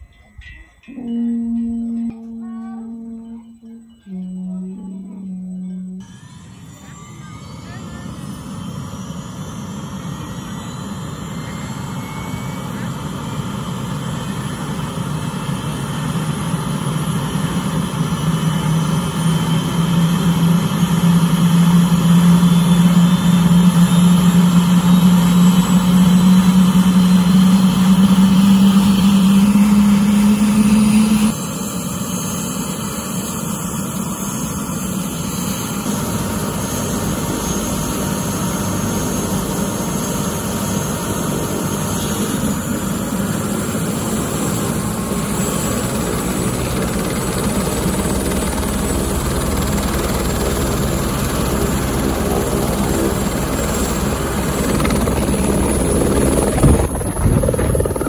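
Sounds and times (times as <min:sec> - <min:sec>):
helicopter turbine and rotor: 0:03.8 - 0:58.0.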